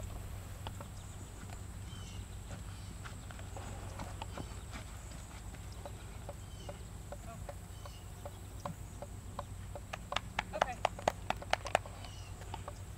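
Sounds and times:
hoofbeats on sand: 0:00.0 - 0:07.6
steady low hum: 0:00.0 - 0:12.9.

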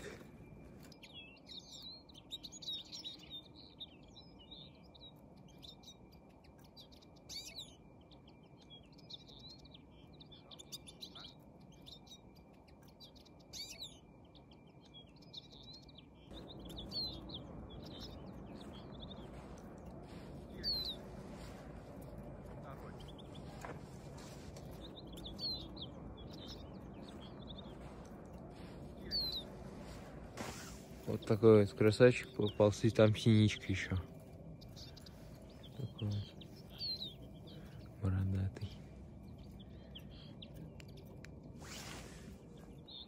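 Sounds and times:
finches chirping and twittering: 0:00.0 - 0:43.0
low rushing noise: 0:16.3 - 0:38.0.

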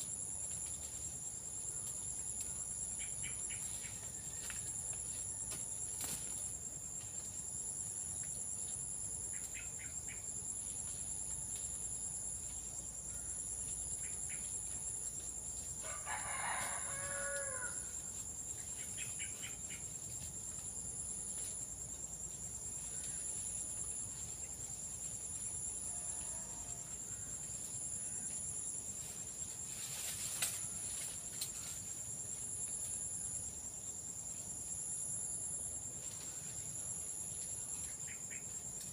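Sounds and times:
high-pitched insect chorus: 0:00.0 - 0:38.9
rooster crowing: 0:15.8 - 0:17.9.

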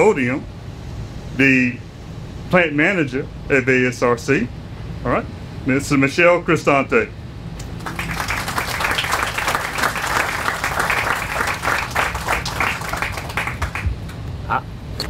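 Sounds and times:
audience applauding: 0:07.7 - 0:14.2.

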